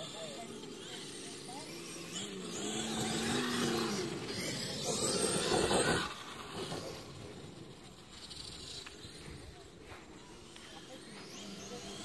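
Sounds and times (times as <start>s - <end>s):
radio-controlled car driving on grass: 0.0s - 12.0s.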